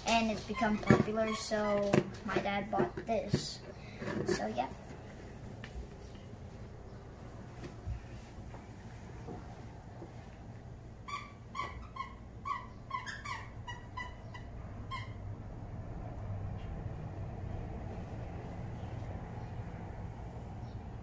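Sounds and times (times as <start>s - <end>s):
short high squeaks: 11.1s - 15.3s.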